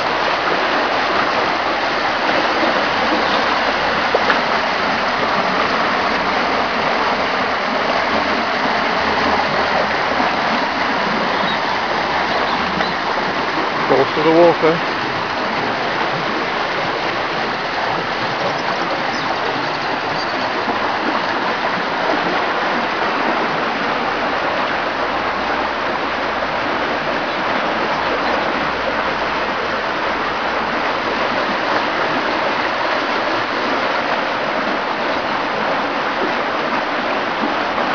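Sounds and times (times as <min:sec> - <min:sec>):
floodwater rushing: 0:00.0 - 0:37.9.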